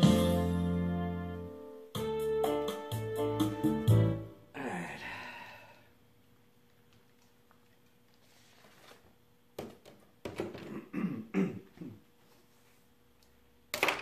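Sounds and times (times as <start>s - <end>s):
man clearing his throat: 10.6s - 12.1s.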